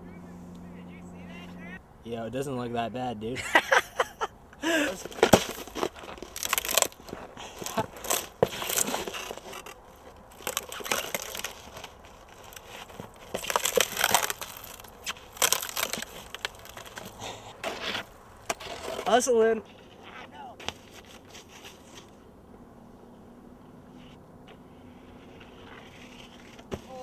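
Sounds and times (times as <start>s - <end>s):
snow crunching underfoot: 4.6s - 22.2s.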